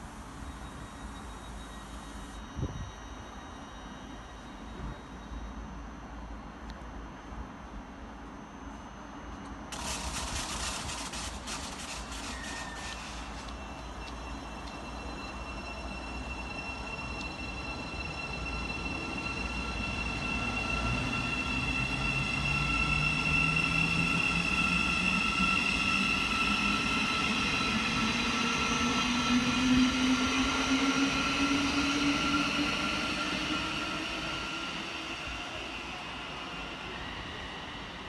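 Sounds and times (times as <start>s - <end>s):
faint high whine: 0.0s - 38.0s
train motors whining rising: 9.7s - 38.0s.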